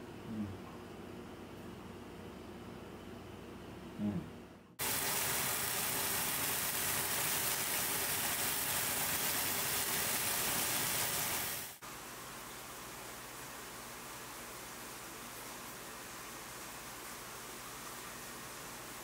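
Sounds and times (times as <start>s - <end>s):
meat sizzling in frying pan: 4.8s - 11.8s.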